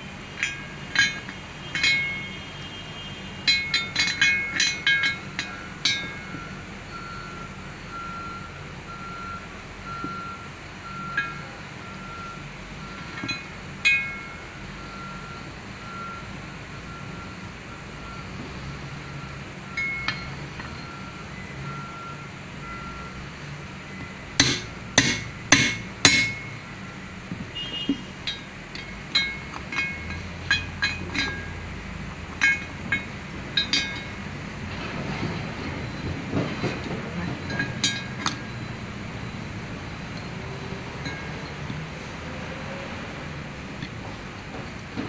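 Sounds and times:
light metallic clinks: 0.4s - 2.4s, 3.5s - 7.3s, 19.7s - 21.1s, 27.7s - 31.6s, 32.3s - 34.2s, 36.6s - 38.6s
sharp metal knocks: 0.4s - 2.4s, 3.4s - 6.5s, 24.4s - 26.7s, 32.3s - 34.3s
faint reversing beeper: 5.5s - 25.0s
steady low hum: 24.1s - 27.2s.

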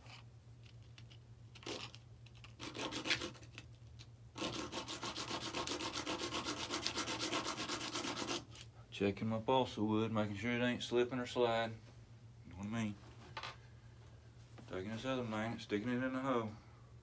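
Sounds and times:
fast back-and-forth scraping: 4.4s - 8.7s.

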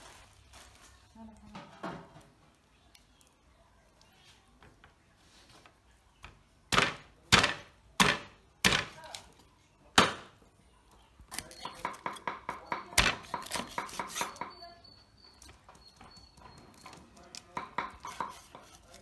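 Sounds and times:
meat cleaver chopping fish on wood: 6.7s - 9.0s, 10.0s - 10.3s, 11.4s - 14.5s, 17.3s - 19.0s.

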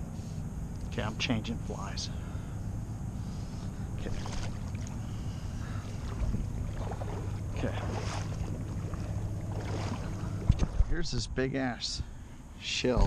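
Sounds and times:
low rumble: 2.0s - 12.2s
splashes in shallow water: 4.0s - 10.9s.

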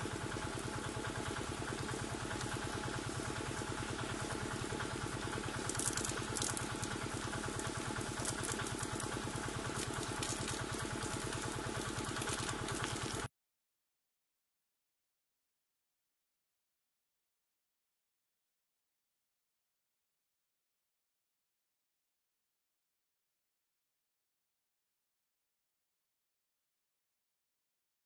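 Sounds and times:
small engine running: 0.0s - 13.3s.

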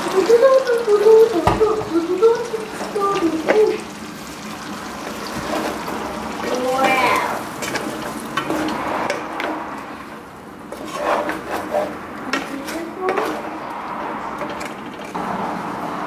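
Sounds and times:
meat sizzling in a frying pan: 0.0s - 9.3s
wooden spatula scraping a pan: 5.0s - 10.0s, 10.7s - 15.2s.

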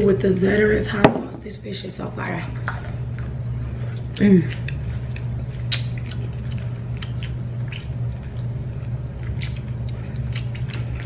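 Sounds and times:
steady low hum: 0.0s - 11.0s
chewing and mouth smacks: 2.6s - 11.0s.

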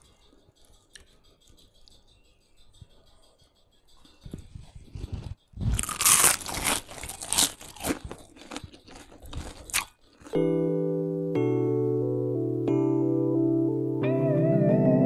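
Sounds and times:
crunchy food being chewed: 4.6s - 10.4s
background music with held notes: 10.3s - 15.0s.

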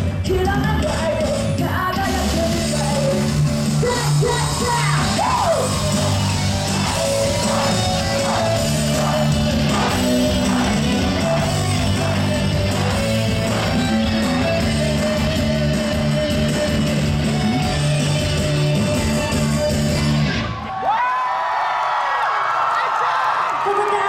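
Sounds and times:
live pop song over loudspeakers: 0.0s - 20.8s
crowd shouting: 3.8s - 16.1s.

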